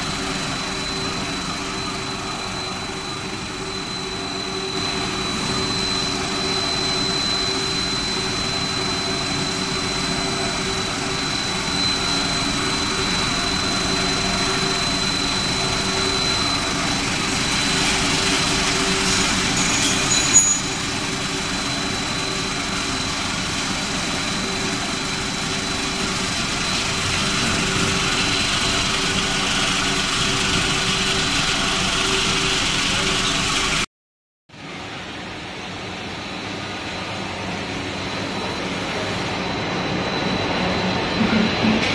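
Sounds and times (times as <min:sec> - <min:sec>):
machinery hum with high whine: 0:00.0 - 0:33.9, 0:34.5 - 0:41.9.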